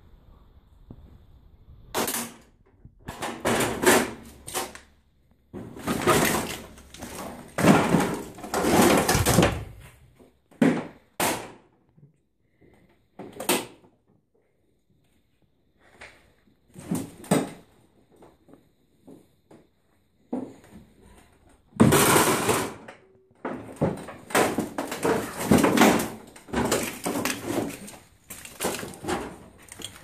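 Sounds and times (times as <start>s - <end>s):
wooden cupboard door scraping: 5.6s - 10.0s.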